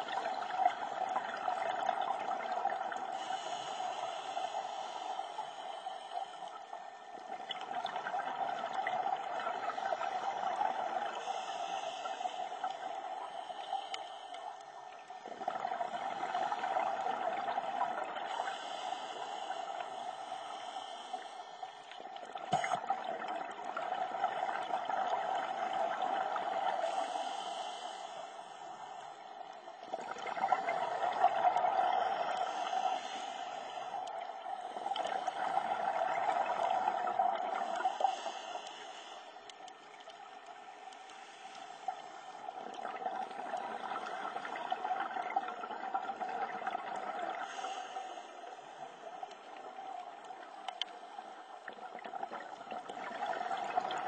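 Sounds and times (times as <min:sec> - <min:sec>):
exhaled bubbles gurgling: 0:00.0 - 0:40.6, 0:41.8 - 0:54.0
diver breathing through regulator: 0:03.0 - 0:06.8, 0:11.1 - 0:14.9, 0:18.2 - 0:22.8, 0:26.4 - 0:29.4, 0:30.5 - 0:39.6, 0:47.2 - 0:49.1.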